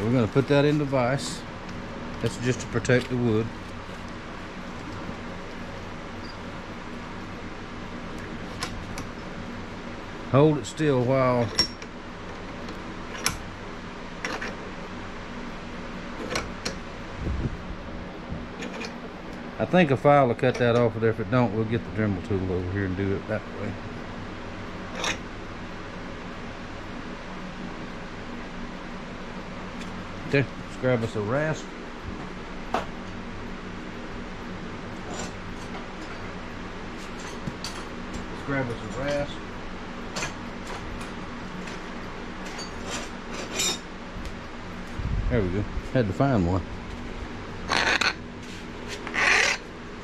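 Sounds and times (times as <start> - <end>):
steady background hum: 0.0 - 50.0.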